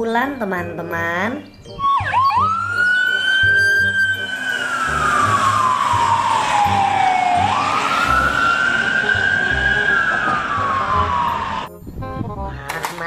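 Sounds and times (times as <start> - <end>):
ambulance siren wailing: 1.7 - 11.7
low rumble of traffic: 1.8 - 11.7.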